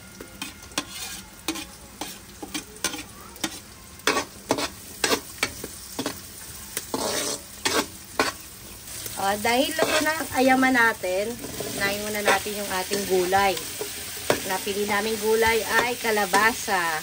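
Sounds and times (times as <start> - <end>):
food sizzling: 0.0 - 17.0
metal spatula scraping wok: 0.2 - 16.8.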